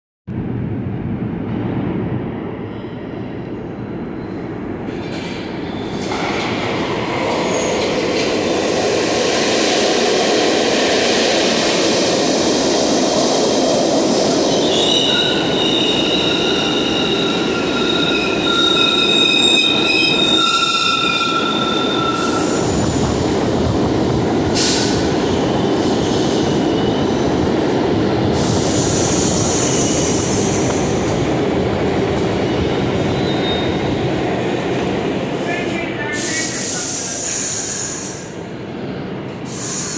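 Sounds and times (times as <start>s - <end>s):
subway train rumbling: 0.3s - 39.9s
train wheels squealing: 14.5s - 22.7s, 32.4s - 34.0s, 36.2s - 38.3s
air hissing: 39.5s - 39.9s.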